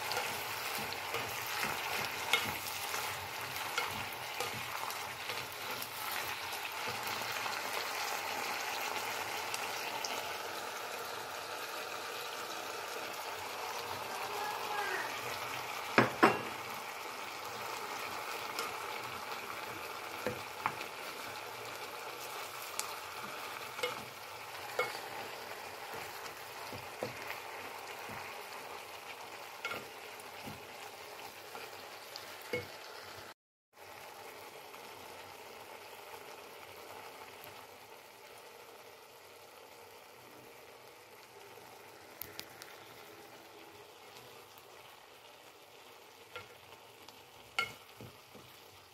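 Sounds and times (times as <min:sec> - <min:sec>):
vegetables sizzling in a pan: 0:00.0 - 0:48.9
wooden spoon knocking on pan: 0:15.9 - 0:16.6.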